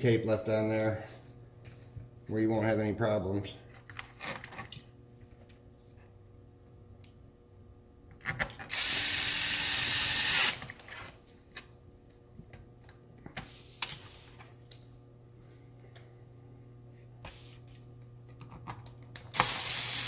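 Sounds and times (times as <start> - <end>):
electric screwdriver motor running: 8.7 - 10.7, 19.3 - 20.0.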